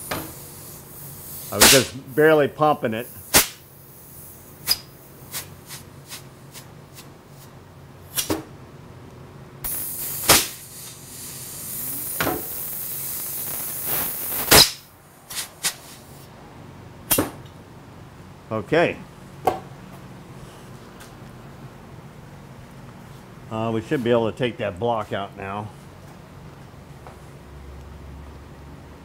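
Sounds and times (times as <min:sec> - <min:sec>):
compressed air hissing: 0:00.0 - 0:06.7, 0:09.6 - 0:16.3.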